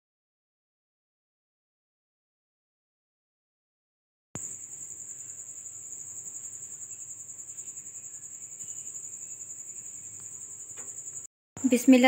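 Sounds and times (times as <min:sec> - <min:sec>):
cricket chirping: 0:04.4 - 0:12.0.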